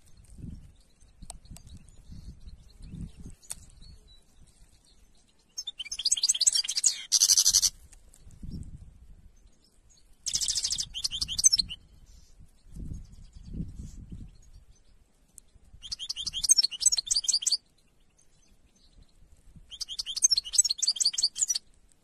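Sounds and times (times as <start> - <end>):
goldfinch singing: 0.2 - 7.8, 9.5 - 12.2, 15.8 - 19.0, 19.7 - 21.6.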